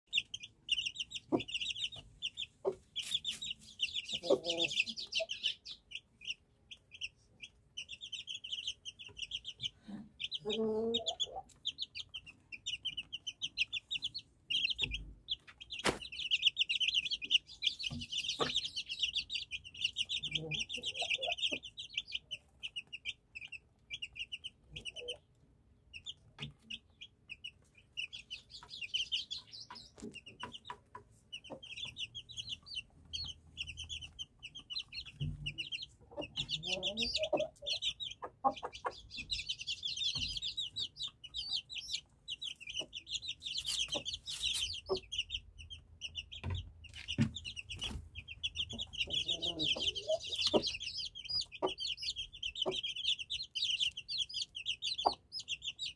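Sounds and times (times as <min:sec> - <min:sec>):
chicks peeping: 0:00.1 - 0:55.9
hen clucking: 0:00.1 - 0:55.9.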